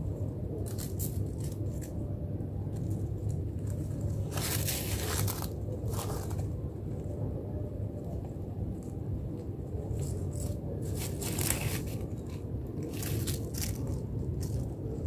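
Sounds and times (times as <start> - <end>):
dry leaves crinkling: 0.4 - 7.2, 9.7 - 15.0.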